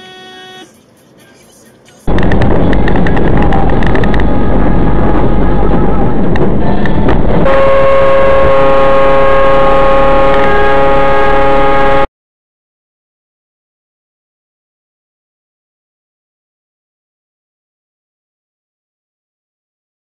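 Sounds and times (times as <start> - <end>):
vehicle horn long blast: 0.0 - 0.8, 7.4 - 12.1
rough road noise with clicks: 0.6 - 4.5, 6.2 - 7.4.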